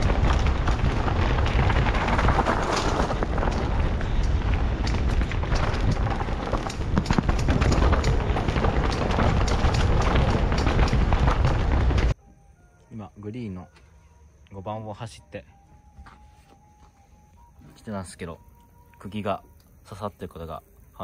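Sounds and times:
tyres on dirt: 0:00.0 - 0:12.2
wind rumble on microphone: 0:00.0 - 0:12.2.

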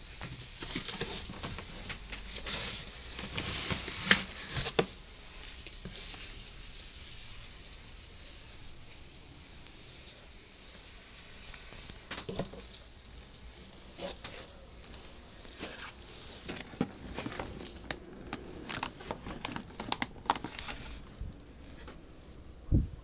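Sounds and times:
foam and plastic bag rustling: 0:00.0 - 0:23.0
sharp little crackles and taps: 0:09.6 - 0:22.0.

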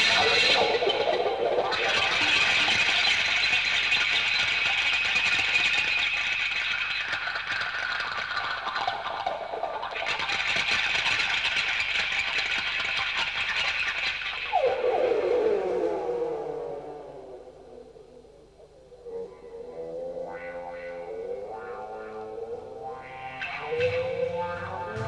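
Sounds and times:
hissing high ambient drone: 0:14.1 - 0:25.0.

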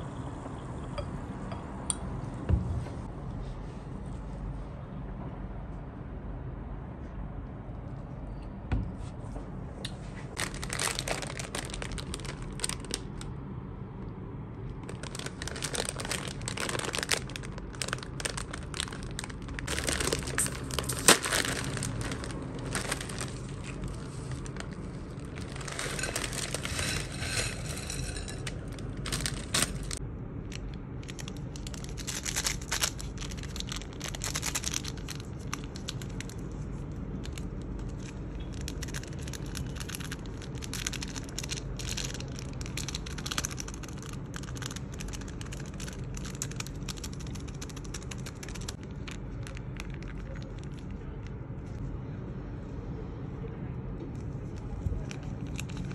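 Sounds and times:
low background rumble: 0:00.0 - 0:55.9
plastic packets crinkling and tearing: 0:10.3 - 0:13.4, 0:14.6 - 0:51.4, 0:54.6 - 0:55.9.

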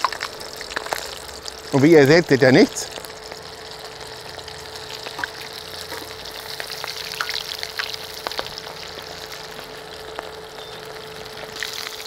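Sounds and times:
faint steady hum: 0:00.0 - 0:12.0
food deep-frying in oil: 0:00.0 - 0:12.0.

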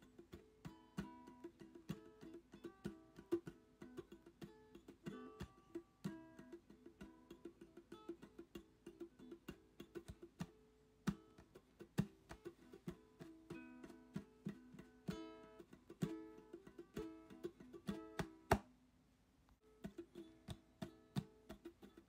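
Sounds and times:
plucked string instrument music: 0:00.0 - 0:18.7, 0:19.6 - 0:22.0.

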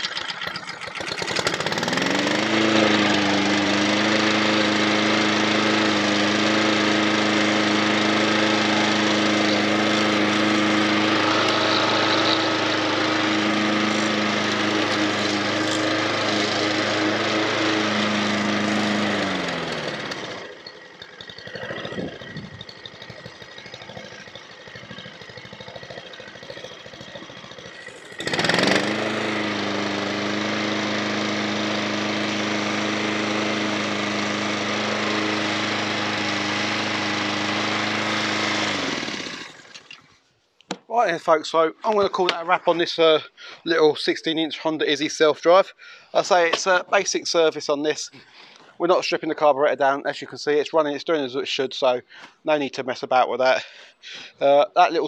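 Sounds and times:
lawn mower engine running: 0:00.0 - 0:40.8, 0:46.2 - 0:47.4.

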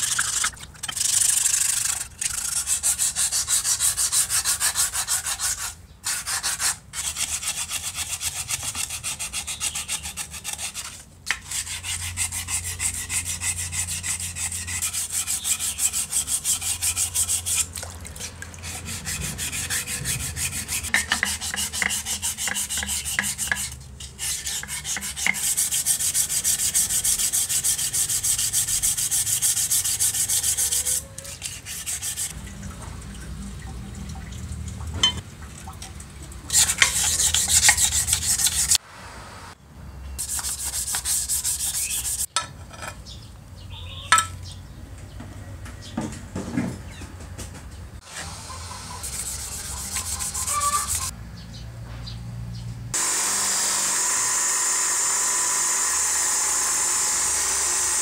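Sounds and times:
hand sanding strokes: 0:00.0 - 0:32.4, 0:36.5 - 0:38.8, 0:40.2 - 0:42.3, 0:48.0 - 0:51.1.

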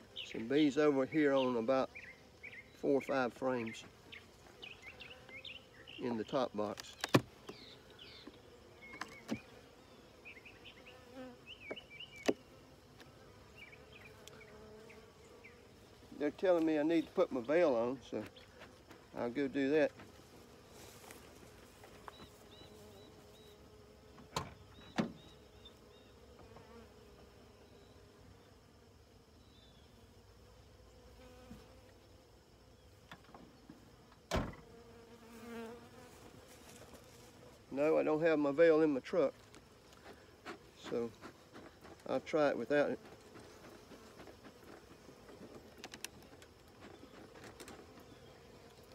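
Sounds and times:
bees buzzing: 0:00.0 - 0:48.9.

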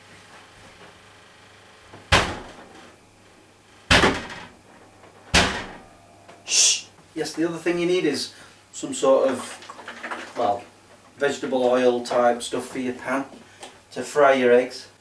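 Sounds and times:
cupboard doors banging: 0:02.1 - 0:02.6, 0:03.9 - 0:04.5, 0:05.2 - 0:05.8.

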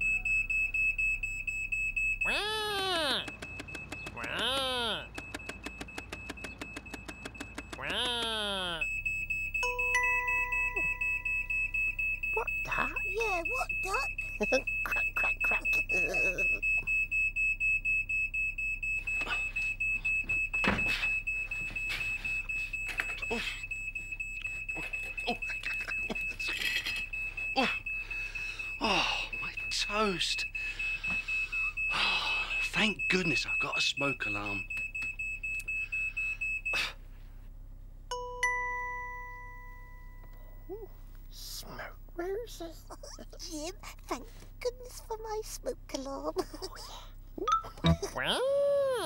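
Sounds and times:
smoke alarm beeping: 0:00.0 - 0:07.9, 0:08.6 - 0:37.0
chime ringing: 0:09.6 - 0:12.0.

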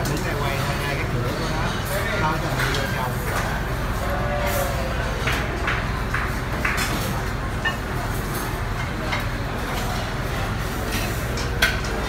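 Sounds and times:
clinks of dishes and cutlery: 0:07.6 - 0:10.1.

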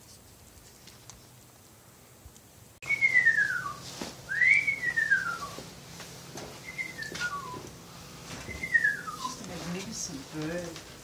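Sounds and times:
eagle whistled calls: 0:02.8 - 0:05.6, 0:06.6 - 0:07.7, 0:08.4 - 0:09.4.

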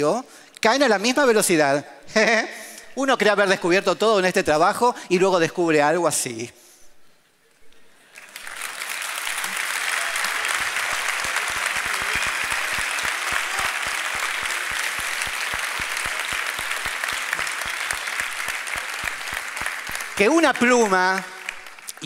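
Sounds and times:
large audience applauding: 0:07.9 - 0:22.0.

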